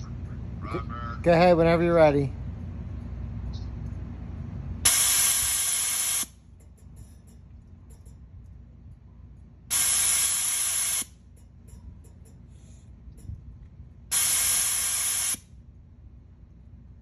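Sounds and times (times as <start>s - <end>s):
compressed air hissing: 4.8s - 6.4s, 9.7s - 11.2s, 14.1s - 15.5s.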